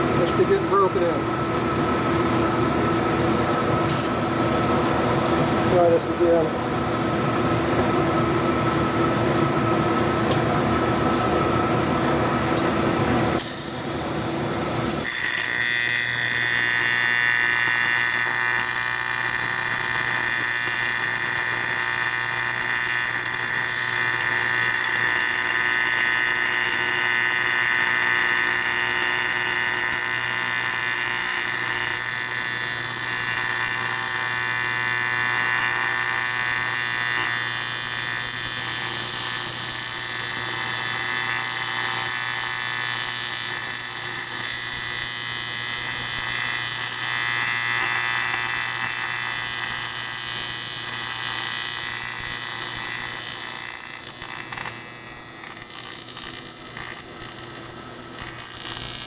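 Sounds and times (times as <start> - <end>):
welding arc buzzing: 0.0 - 59.0.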